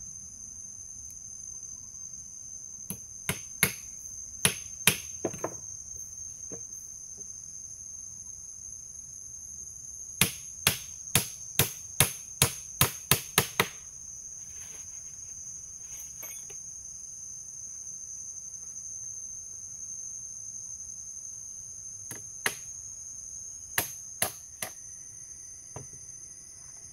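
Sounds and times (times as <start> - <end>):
forest insects droning: 0.0 - 26.9
hammer striking nail into wood: 2.9 - 3.8, 4.4 - 5.6, 10.2 - 13.8, 23.8 - 24.8.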